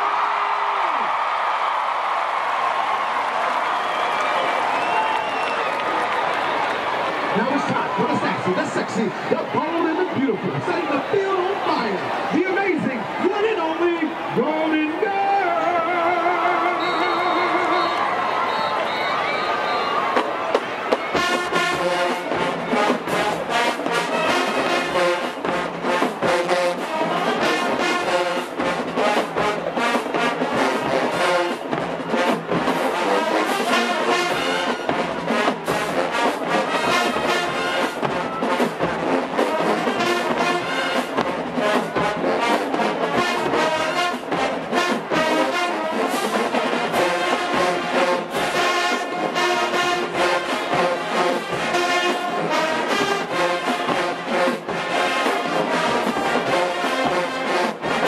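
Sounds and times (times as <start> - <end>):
marching band brass tune: 0.0 - 58.0
marching drums beat: 20.1 - 58.0.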